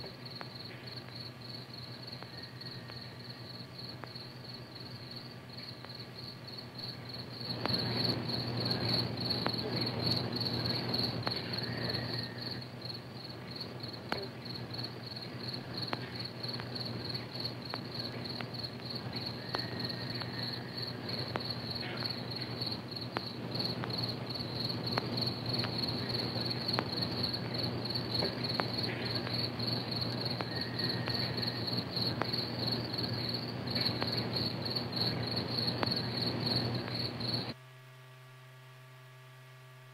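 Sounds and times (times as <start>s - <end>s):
crickets chirping: 0.0s - 37.6s
low steady hum: 0.0s - 39.9s
film soundtrack crackles: 7.4s - 37.5s.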